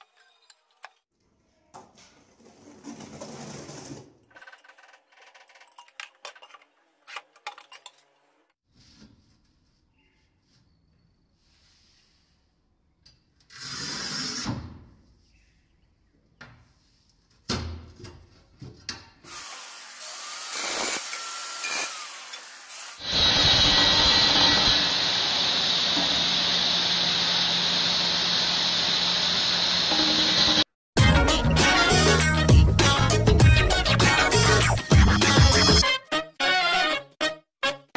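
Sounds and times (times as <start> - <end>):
loud hiss: 19.3 - 30.6
power tool running: 19.3 - 30.7.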